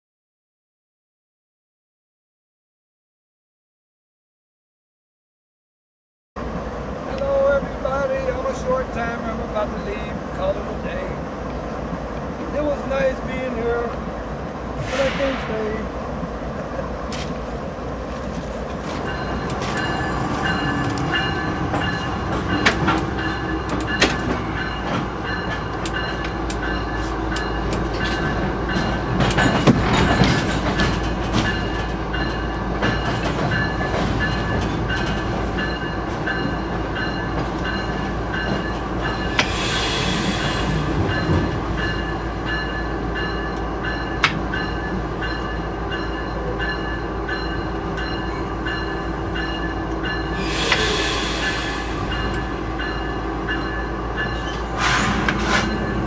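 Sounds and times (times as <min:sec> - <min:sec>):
diesel locomotive running: 0:06.4 - 0:56.0
brief air hiss: 0:14.8 - 0:15.6, 0:39.4 - 0:40.9, 0:50.4 - 0:52.2.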